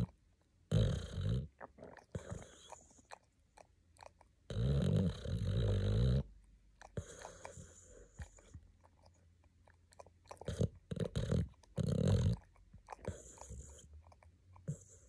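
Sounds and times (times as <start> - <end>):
dog snoring: 0.7 - 3.0, 4.5 - 6.3, 7.0 - 8.6, 10.3 - 13.9
soft dog breaths: 1.8 - 3.3, 6.8 - 9.3, 10.3 - 15.0.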